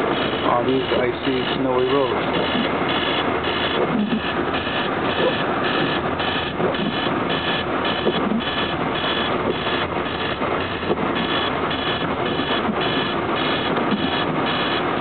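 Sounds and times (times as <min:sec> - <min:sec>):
electronic alarm beeping: 0:00.0 - 0:14.9
car driving through snow: 0:00.0 - 0:15.0.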